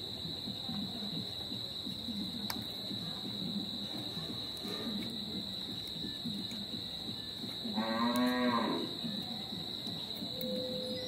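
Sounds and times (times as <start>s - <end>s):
high-pitched whine: 3.4s - 11.0s.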